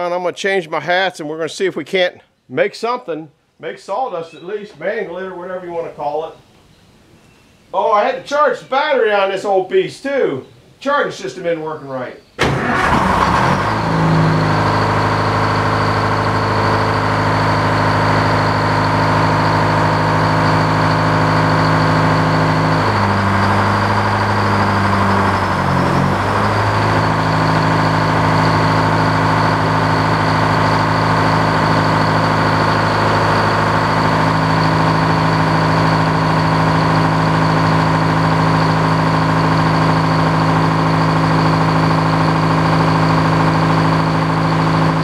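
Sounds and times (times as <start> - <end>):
old engine running: 12.4 - 45.0.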